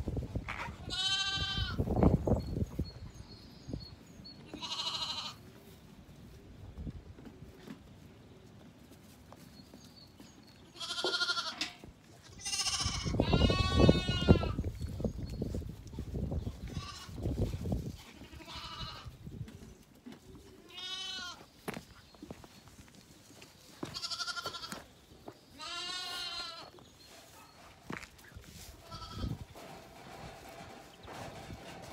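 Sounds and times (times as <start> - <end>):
lambs bleating: 0.8 - 1.9, 4.5 - 5.4, 10.7 - 14.6, 18.1 - 19.1, 20.6 - 21.4, 23.8 - 24.8, 25.6 - 26.7, 28.8 - 29.4
bumping and rustling: 29.2 - 31.9.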